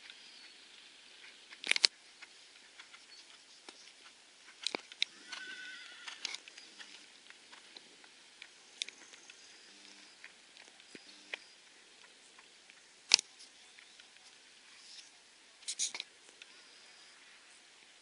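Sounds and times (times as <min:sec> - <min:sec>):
horse whinnying: 0:05.1 - 0:06.4.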